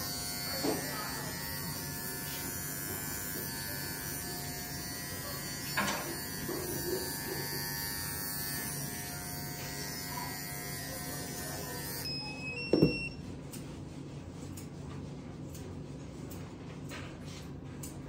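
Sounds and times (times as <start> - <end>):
dog clippers buzzing: 0.0 - 12.1.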